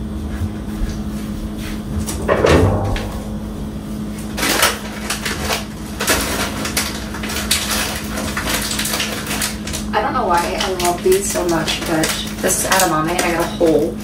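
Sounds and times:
steady low hum: 0.0s - 14.0s
plastic bag crinkling: 4.3s - 13.9s.

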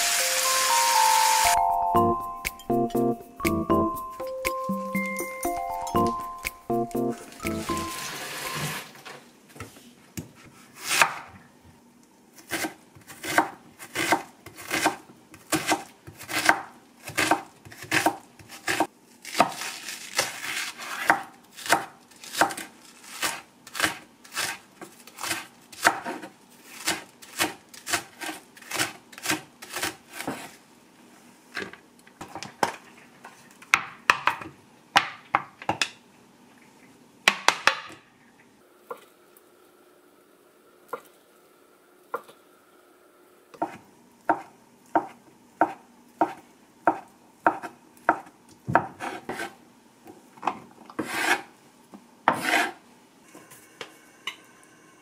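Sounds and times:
knife chopping on cutting board: 10.3s - 11.3s, 12.5s - 24.6s, 25.2s - 30.5s, 43.6s - 49.6s, 51.0s - 51.5s, 52.3s - 52.8s.

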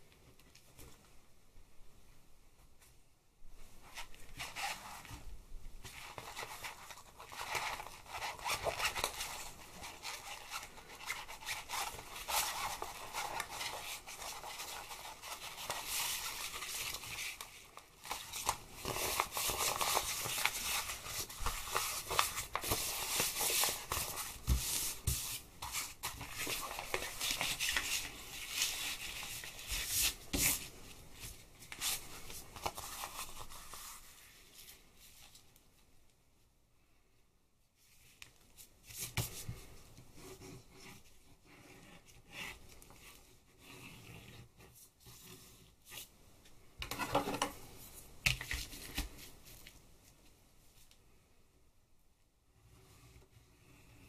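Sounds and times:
plastic sheet crinkling: 5.8s - 35.5s.

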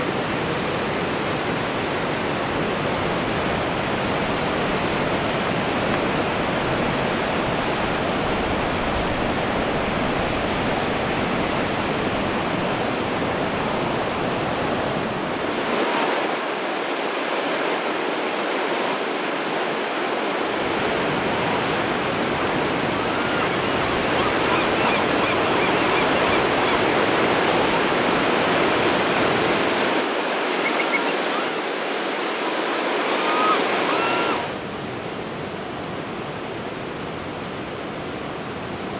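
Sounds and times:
ocean surf on beach: 0.0s - 38.9s
faint bird calls: 30.5s - 31.6s, 33.1s - 34.5s.

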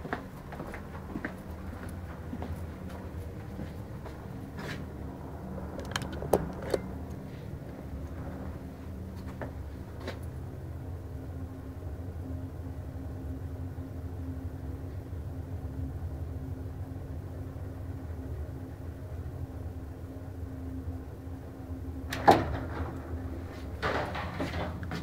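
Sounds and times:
elevator motor hum: 0.0s - 25.0s
elevator clunk: 5.8s - 7.1s, 22.0s - 25.0s.

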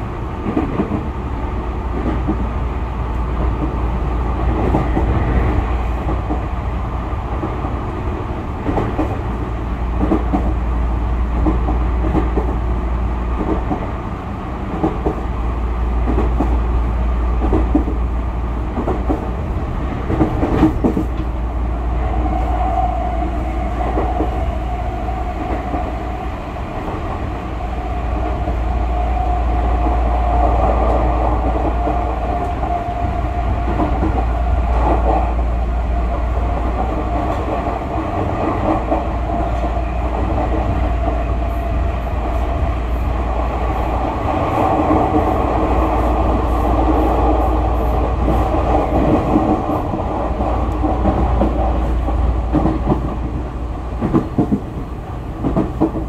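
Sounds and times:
train wheels rumbling: 0.0s - 56.0s
faint rail clicks: 46.8s - 53.2s.

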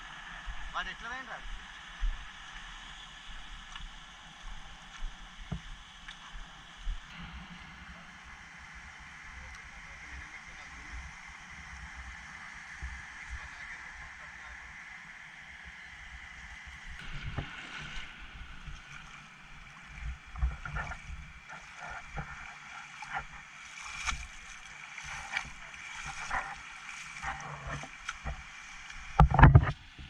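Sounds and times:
feet splashing through water: 16.8s - 29.4s.

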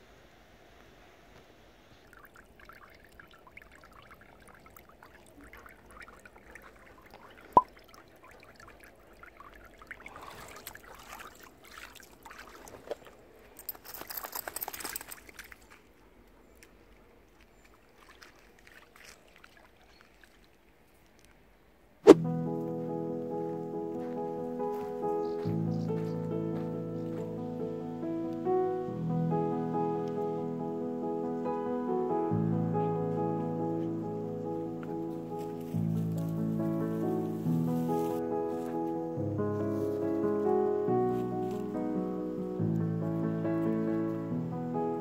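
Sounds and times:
water splashing around dog's legs: 2.2s - 21.4s.

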